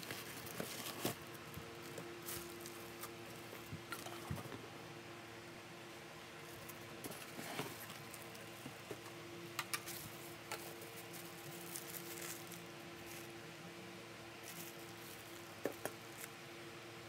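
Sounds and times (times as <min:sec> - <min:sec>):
plastic wrap crinkling: 0:00.0 - 0:03.6, 0:09.7 - 0:13.3, 0:14.4 - 0:16.3
faint steady hum: 0:00.0 - 0:17.0.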